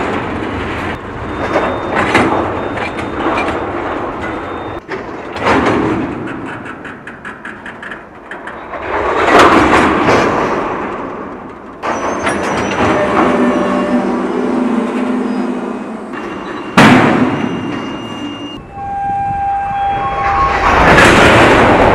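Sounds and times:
train couplers clanking: 0:00.0 - 0:21.9
train rolling: 0:00.0 - 0:21.9
faint squeal: 0:11.8 - 0:21.4
heavy bang: 0:16.2 - 0:18.1, 0:20.0 - 0:21.9.

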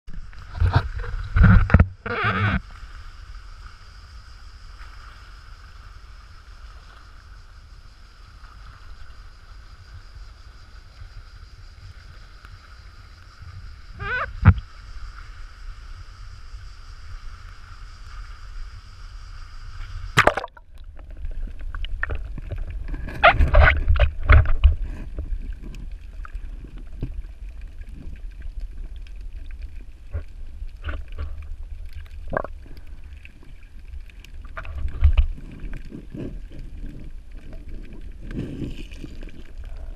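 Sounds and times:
crackling: 0:00.1 - 0:02.8, 0:19.9 - 0:39.9
faint steady hum: 0:00.1 - 0:39.9
muffled water sloshing: 0:20.1 - 0:39.9.

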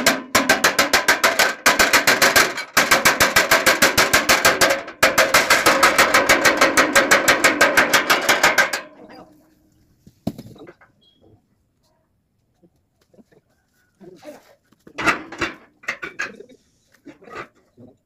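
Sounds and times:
rapid hammering on metal: 0:00.0 - 0:09.0.

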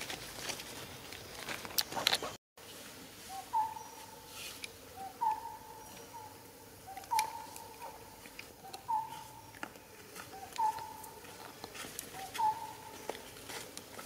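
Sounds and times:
bird calling: 0:03.3 - 0:04.1, 0:04.9 - 0:13.2.

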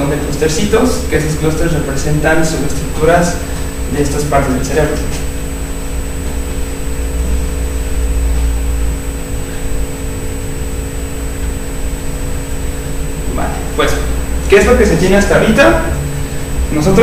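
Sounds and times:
steady hum: 0:00.0 - 0:17.0
low rumble: 0:04.8 - 0:17.0.

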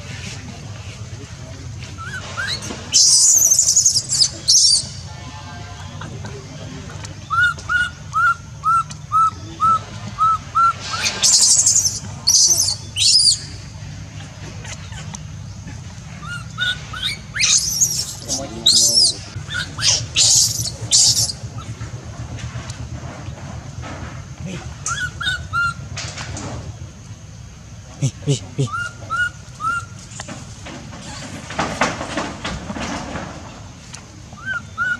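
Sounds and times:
low steady hum: 0:00.0 - 0:34.9
baby monkey shrill screams: 0:02.0 - 0:05.0, 0:07.3 - 0:13.5, 0:16.2 - 0:21.4
baby monkey squeaky calls: 0:02.0 - 0:05.0, 0:07.2 - 0:13.6, 0:16.2 - 0:21.8, 0:24.8 - 0:25.9, 0:28.6 - 0:30.0, 0:34.4 - 0:34.9.

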